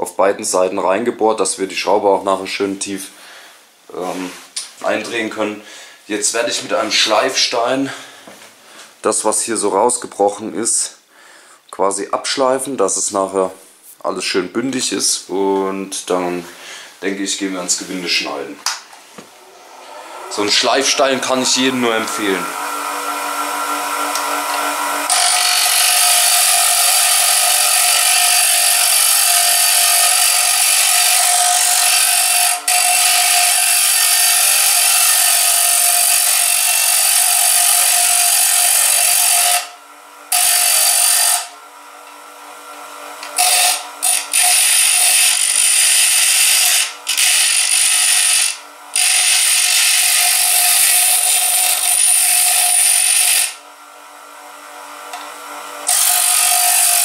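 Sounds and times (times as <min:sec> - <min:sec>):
bench grinder motor hum: 0:19.3 - 0:57.0
metal grinding on grinding stone: 0:23.9 - 0:39.7, 0:40.3 - 0:41.5, 0:43.4 - 0:53.6, 0:55.9 - 0:57.0.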